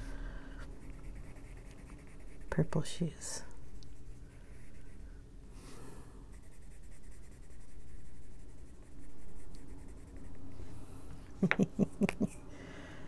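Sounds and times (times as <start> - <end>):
pencil scratching on paper: 0.6 - 2.9, 3.6 - 5.1, 6.3 - 10.5.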